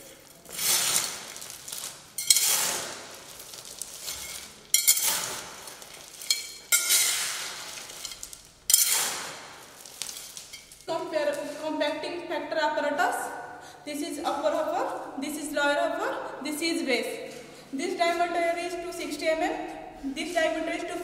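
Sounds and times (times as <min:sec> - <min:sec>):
trowel scraping wet concrete: 0:00.0 - 0:10.7.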